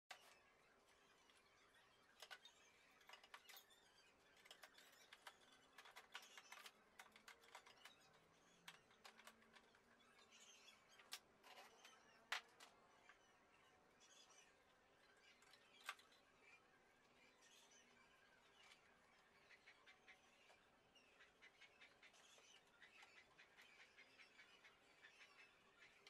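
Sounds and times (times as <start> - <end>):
plastic and metal parts clicking: 4.4 - 9.8.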